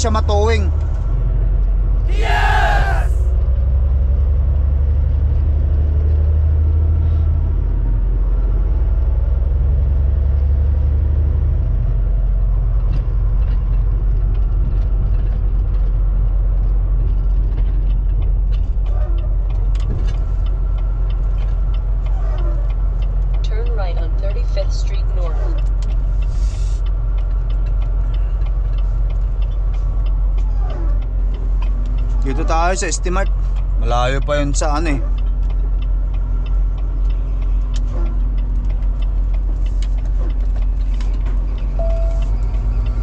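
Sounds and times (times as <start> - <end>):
road noise: 0.0 - 43.0
truck diesel engine drone: 34.6 - 43.0.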